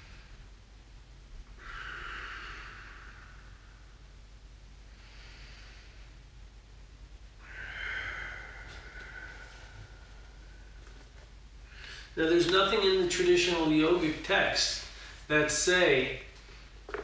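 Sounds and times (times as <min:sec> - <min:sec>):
man breathing slowly: 0:01.4 - 0:04.2, 0:04.8 - 0:06.4, 0:07.4 - 0:12.2, 0:14.8 - 0:15.3.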